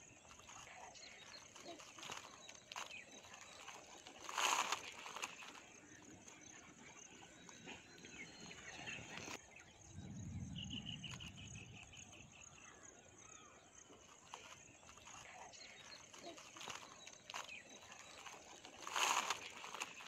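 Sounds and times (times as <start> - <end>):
bird chirping: 0.0 - 20.0
low rumble: 9.7 - 12.9.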